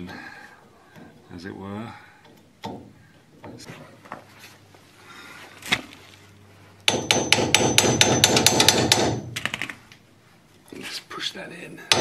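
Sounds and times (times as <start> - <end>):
small hammer tapping metal: 6.8 - 9.7.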